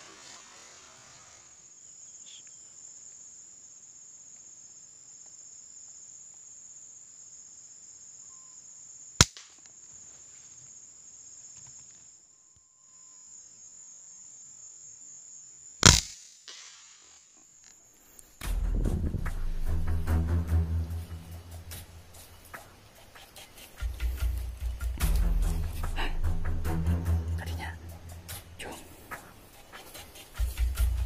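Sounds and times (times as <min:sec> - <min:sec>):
air rifle shots: 0:15.8 - 0:17.1.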